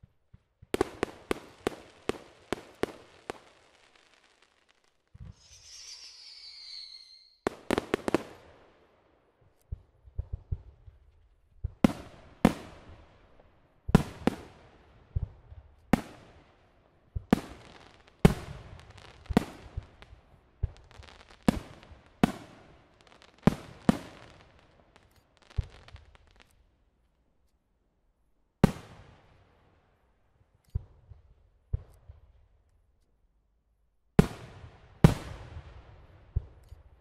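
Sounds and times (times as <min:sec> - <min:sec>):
firework shells bursting: 0:00.7 - 0:08.5.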